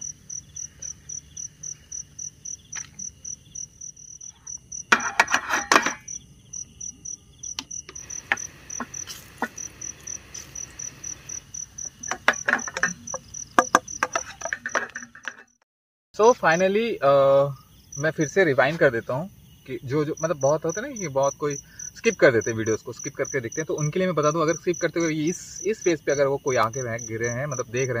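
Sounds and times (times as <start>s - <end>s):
crickets chirping: 0.0s - 15.6s, 16.2s - 28.0s
clatter of knocks: 12.0s - 15.6s.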